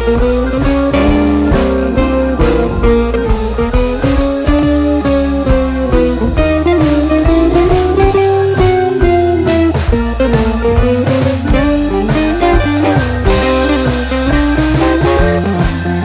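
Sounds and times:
blues rock instrumental: 0:00.0 - 0:16.0.

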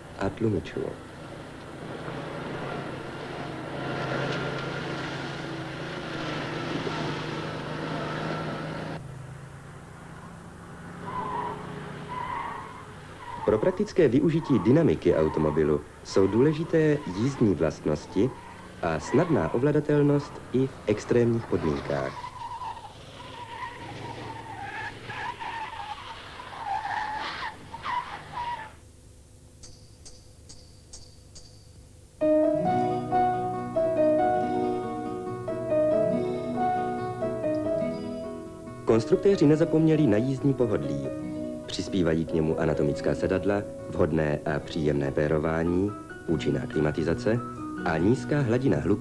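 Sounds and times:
tyre and road noise: 0:00.0 - 0:28.9
car engine drone: 0:00.0 - 0:42.6.

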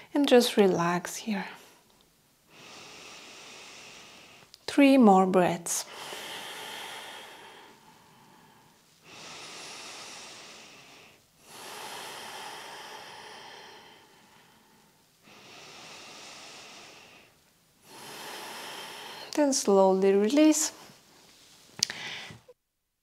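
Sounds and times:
woman breathing slowly: 0:02.5 - 0:04.6, 0:05.8 - 0:19.4, 0:21.8 - 0:22.6.

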